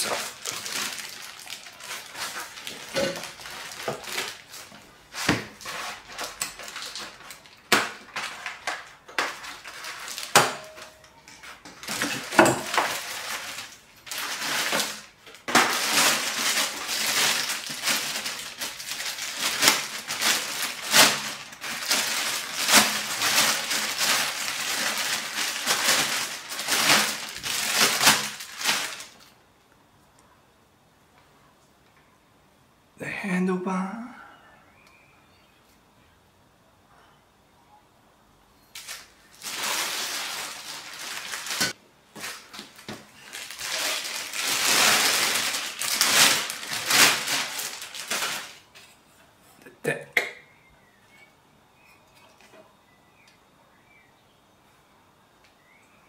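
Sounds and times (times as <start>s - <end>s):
plastic wrapping crinkling: 0.0s - 29.4s, 38.7s - 49.0s.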